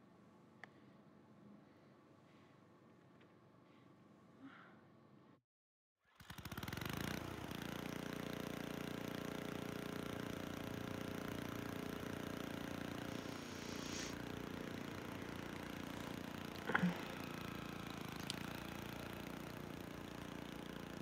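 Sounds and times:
steady motor-like drone: 0:12.6 - 0:21.0.

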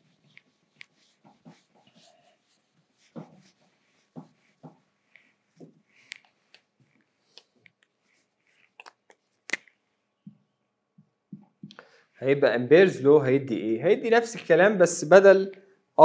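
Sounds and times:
marker squeaking on whiteboard: 0:00.0 - 0:10.6.

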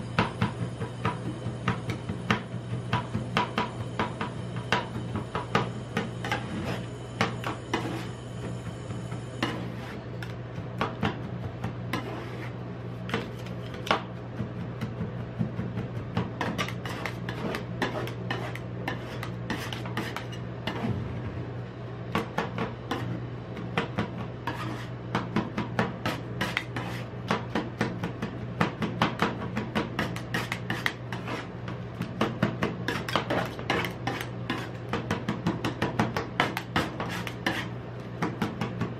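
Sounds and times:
steady low hum: 0:00.0 - 0:38.9
metal spatulas chopping and scraping: 0:09.4 - 0:14.1, 0:16.1 - 0:21.1, 0:22.1 - 0:23.2, 0:23.8 - 0:27.9, 0:28.6 - 0:31.5, 0:32.1 - 0:38.6.

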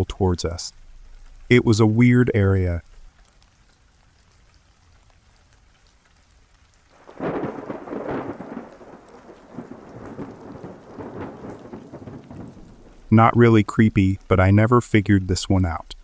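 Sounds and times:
steady rain: 0:00.0 - 0:16.0
thunder rumbling: 0:06.9 - 0:14.3.

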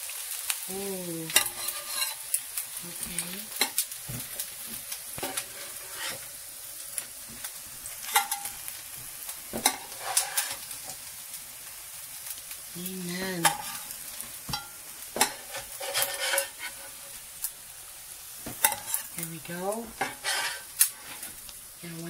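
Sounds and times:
patties sizzling in a frying pan: 0:00.0 - 0:22.0
utensil scraping the pan: 0:01.3 - 0:02.3, 0:02.9 - 0:06.4, 0:07.3 - 0:08.7, 0:09.5 - 0:11.0, 0:13.2 - 0:17.4, 0:18.4 - 0:21.6.

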